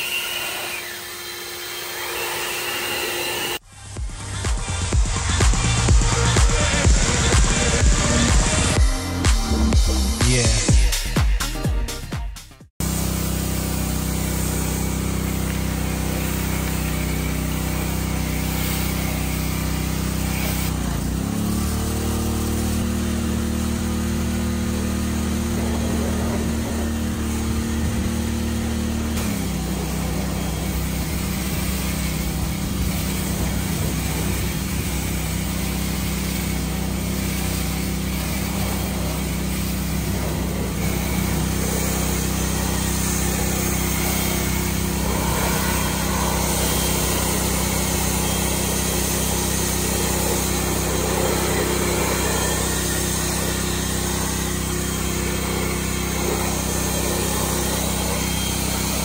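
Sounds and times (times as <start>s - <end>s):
pressure washer humming: 0.0s - 59.0s
water spraying hiss: 12.8s - 20.8s, 21.7s - 59.0s.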